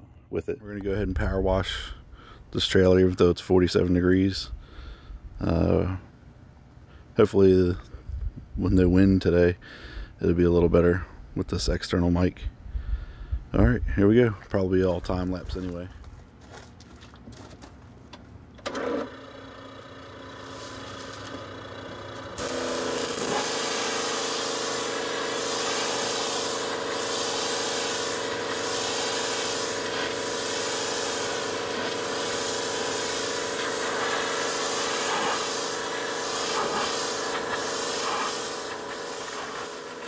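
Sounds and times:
pressure washer engine running: 18.7 - 40.0
high-pressure water jet hissing: 22.4 - 40.0.

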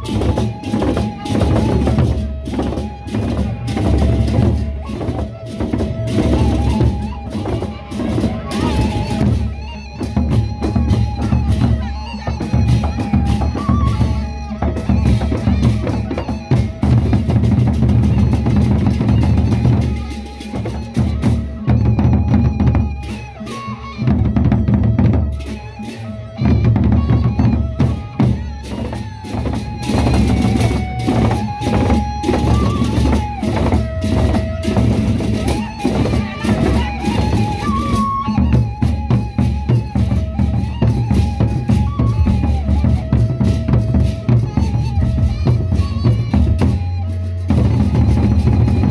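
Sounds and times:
barrel drums beaten with sticks: 0.0 - 23.3, 26.4 - 48.9.

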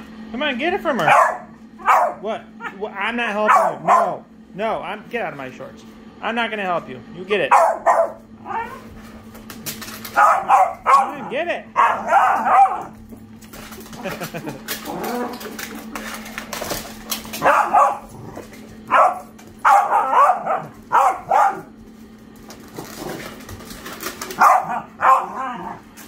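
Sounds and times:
puppies barking: 0.8 - 4.3, 7.4 - 9.0, 9.6 - 22.0, 22.6 - 26.0.

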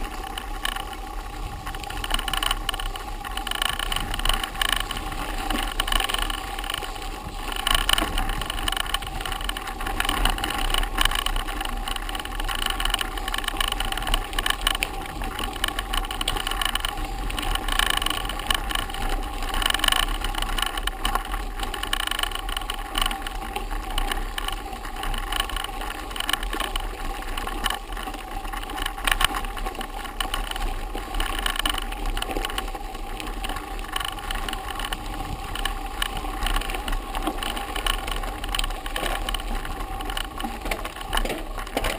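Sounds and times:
bike rattling: 0.0 - 41.9
sharp knocks of bike jolting: 38.8 - 41.9.

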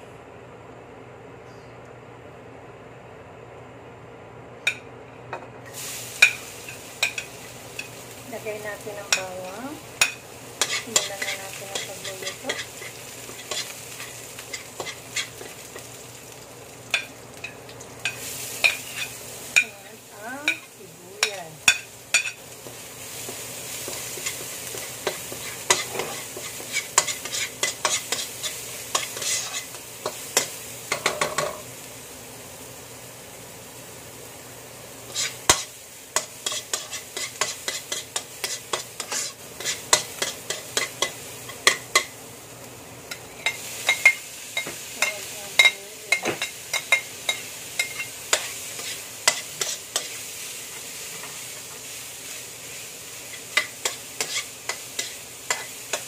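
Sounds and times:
food sizzling in oil: 5.6 - 56.0
metal spoon scraping a wok: 10.0 - 15.8, 18.1 - 19.7, 23.9 - 31.5, 35.1 - 42.1, 43.2 - 50.2, 53.3 - 56.0.

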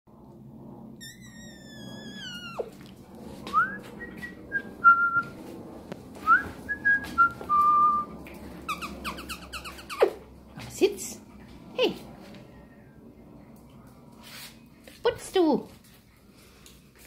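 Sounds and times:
dog whimpering: 1.0 - 2.9, 8.7 - 10.3
dog whining: 1.0 - 2.9, 8.7 - 10.3.

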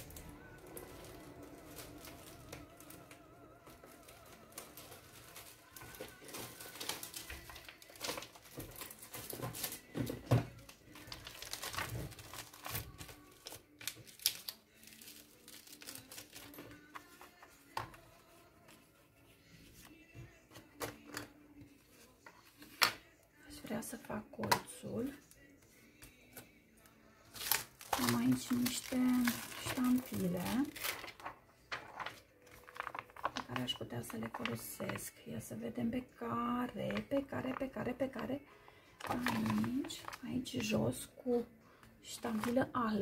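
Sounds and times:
paper rustling and crinkling: 0.0 - 21.0, 27.3 - 34.8, 39.0 - 40.7, 42.2 - 42.7.

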